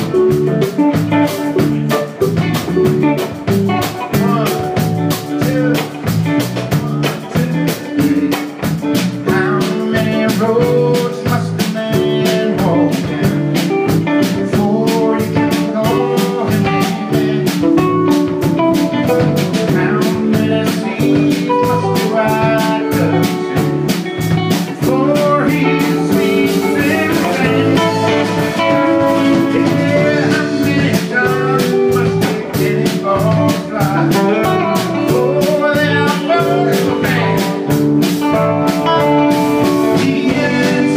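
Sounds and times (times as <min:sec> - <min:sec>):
live rock band playing: 0:00.0 - 0:40.9.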